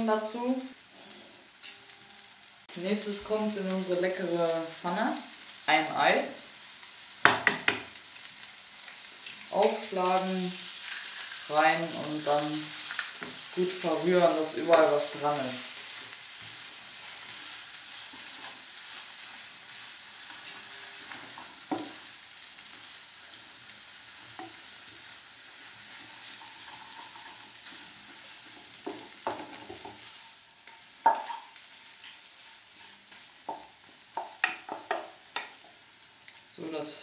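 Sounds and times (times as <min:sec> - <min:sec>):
food sizzling in frying pan: 0:00.0 - 0:37.0
spatula stirring and tossing food: 0:00.6 - 0:36.7
spatula knocking against pan: 0:07.2 - 0:07.9.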